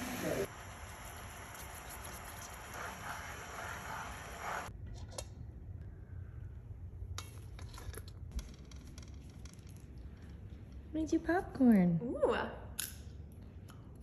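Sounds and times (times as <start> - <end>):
liquid bubbling and hissing: 0.0 - 4.7.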